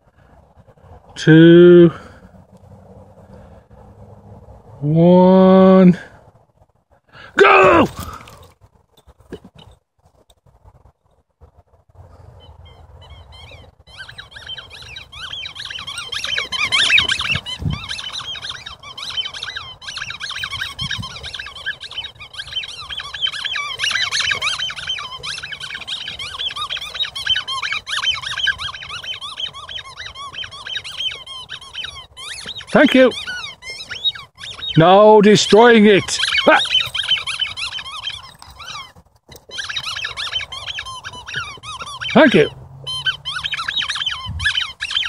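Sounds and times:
squeaky toy squeaking: 12.7s - 34.8s, 35.4s - 45.0s.

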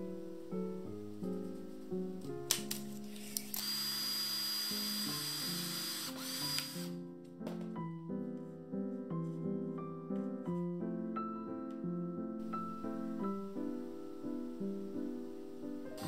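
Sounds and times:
cordless drill whining: 3.2s - 7.0s.

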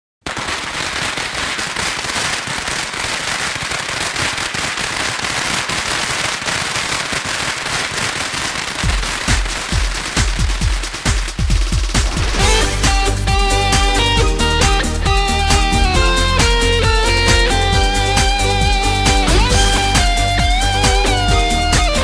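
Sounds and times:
firecrackers crackling: 0.2s - 22.0s
electronic bass beat: 8.9s - 22.0s.

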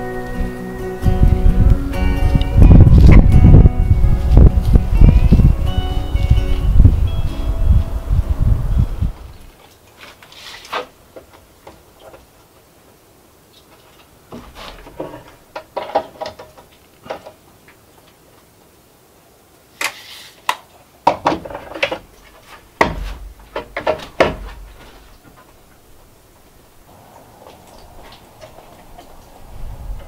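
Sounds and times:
short scrape: 10.0s - 10.9s, 19.8s - 20.4s
tools knocking on wooden plank: 22.8s - 24.7s.

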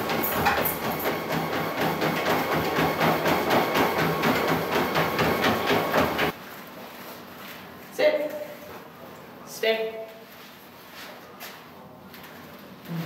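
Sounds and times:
treadmill motor hum: 0.0s - 6.6s
dog paws clattering on belt: 0.1s - 1.9s.

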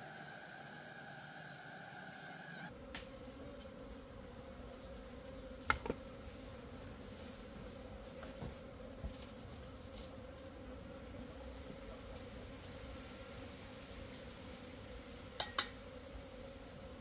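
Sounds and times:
honeybees buzzing: 0.0s - 17.0s.

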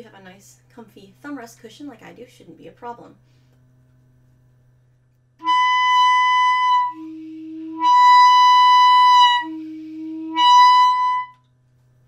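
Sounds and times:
clarinet high held note: 5.4s - 11.4s
quiet low clarinet tone: 5.4s - 11.6s.

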